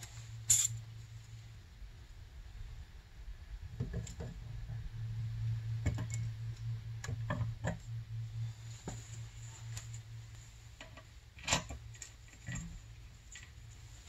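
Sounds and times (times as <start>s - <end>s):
steady low hum: 0.0s - 14.0s
small metal parts clinking: 0.5s - 0.7s.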